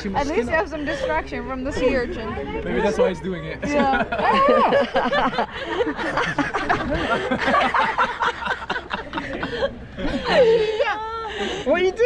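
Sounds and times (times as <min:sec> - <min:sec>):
chattering voices: 0:00.0 - 0:12.0
people laughing and snickering: 0:03.4 - 0:12.0.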